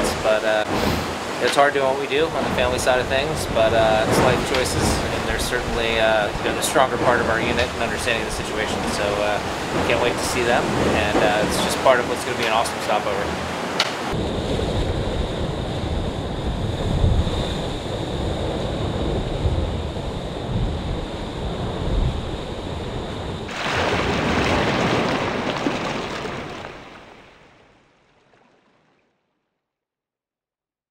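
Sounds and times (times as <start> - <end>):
spray and wave wash hissing: 0.0 - 14.2
wind and rushing water: 0.0 - 29.1
faint high whine: 14.2 - 23.5.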